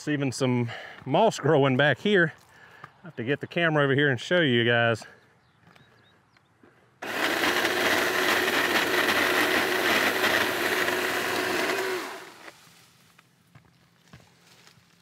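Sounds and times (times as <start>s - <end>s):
chainsaw cutting branches: 7.0s - 12.9s.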